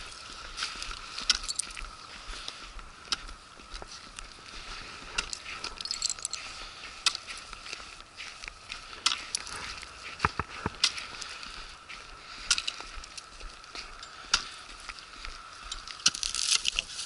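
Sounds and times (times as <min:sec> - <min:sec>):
gear clinking: 0:01.2 - 0:01.9, 0:05.2 - 0:06.6.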